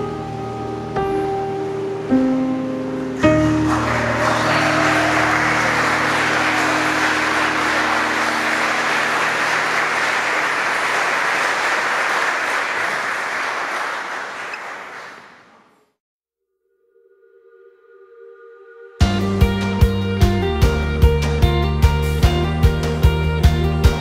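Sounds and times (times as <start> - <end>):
music: 0.0 - 10.2, 17.0 - 24.0
crowd applauding: 3.2 - 15.8.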